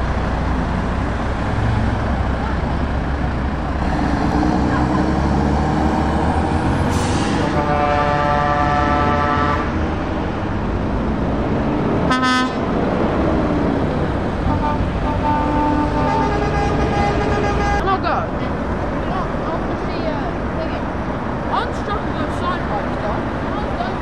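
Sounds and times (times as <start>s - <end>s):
truck diesel engines running: 0.0s - 24.0s
truck air horn blasts: 7.0s - 9.8s, 12.1s - 12.7s, 14.5s - 17.8s.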